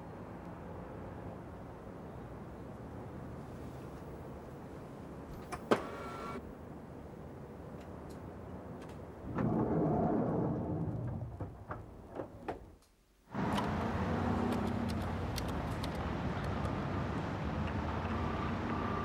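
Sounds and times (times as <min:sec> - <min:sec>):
road traffic noise: 0:00.0 - 0:09.2, 0:13.3 - 0:19.0.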